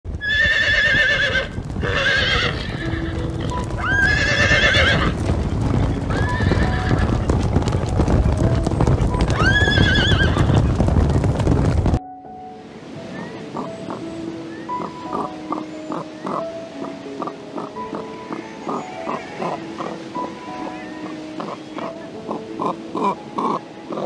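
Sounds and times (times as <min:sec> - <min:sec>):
hoofbeats on hard dirt: 0:00.1 - 0:12.0
horses whinnying: 0:00.2 - 0:07.5, 0:09.1 - 0:10.7, 0:17.9 - 0:20.0.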